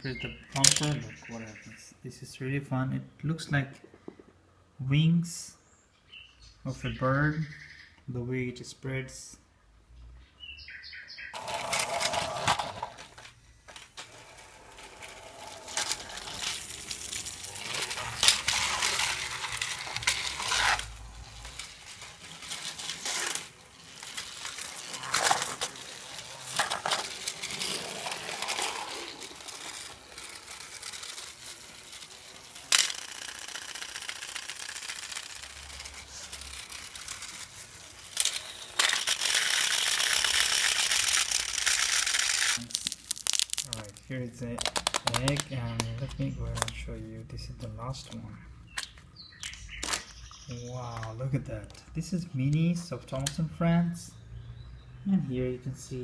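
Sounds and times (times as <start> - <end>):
toy trains clattering on track: 0.5 - 1.2, 11.4 - 43.9.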